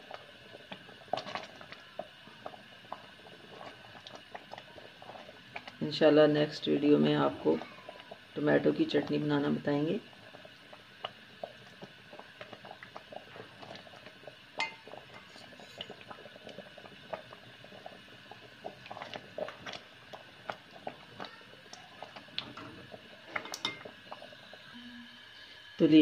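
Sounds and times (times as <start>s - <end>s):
spatula scraping in a pot: 14.6s - 16.0s.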